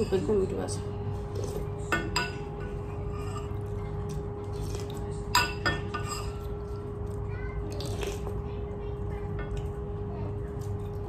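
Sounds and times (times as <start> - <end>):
utensil clinking against steel bowl: 0.0 - 0.6, 4.8 - 6.5
steady hum: 0.0 - 11.0.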